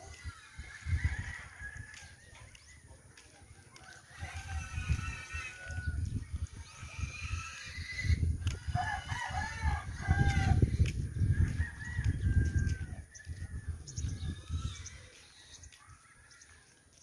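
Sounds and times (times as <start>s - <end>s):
rooster crowing: 3.8s - 6.0s.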